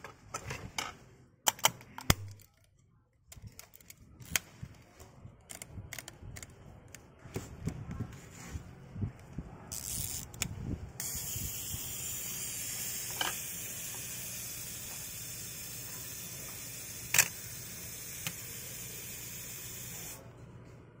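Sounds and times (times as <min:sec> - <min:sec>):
camera mechanical clicks: 0:17.0 - 0:17.4.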